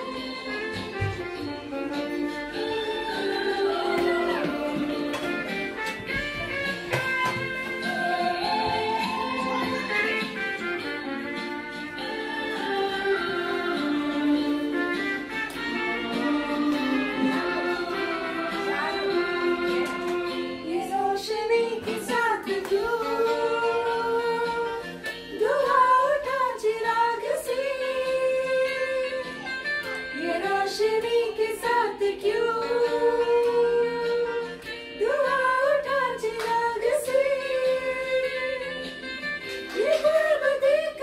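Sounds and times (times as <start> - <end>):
instrumental accompaniment: 0.0 - 41.0
girl singing: 2.6 - 5.2, 7.4 - 10.3, 18.5 - 24.8.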